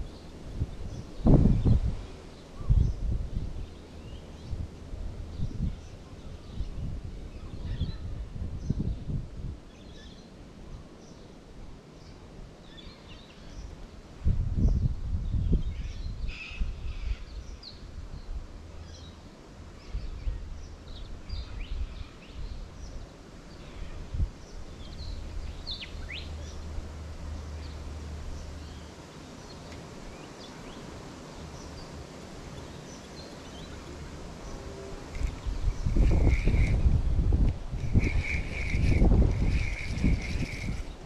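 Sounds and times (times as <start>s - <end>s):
wind rumble: 0.0s - 9.7s, 14.2s - 18.8s, 33.6s - 41.0s
birds chirping and calling: 35.1s - 37.0s, 37.8s - 41.0s.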